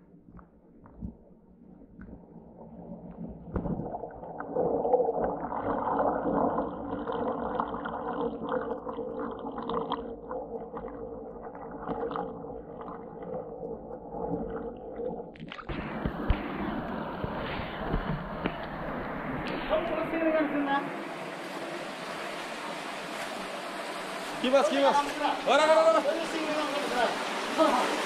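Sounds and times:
underwater water gurgling: 0.0s - 28.0s
faint underwater clicks and knocks: 0.1s - 19.7s.

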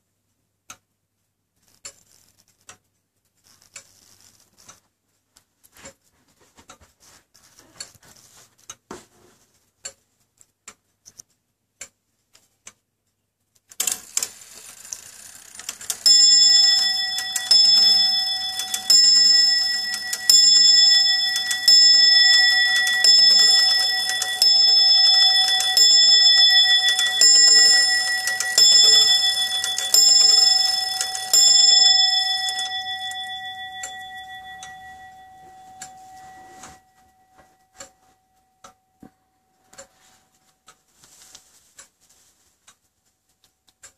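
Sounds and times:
clock ticking: 0.6s - 1.0s, 9.7s - 43.9s
clock strike train whirring: 14.9s - 35.3s
clock bell striking: 15.5s - 37.6s.

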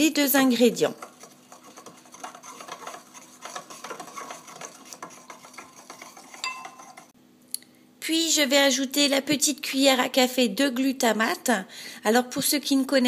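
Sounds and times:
spoon scraping ceramic bowl: 0.7s - 7.2s.

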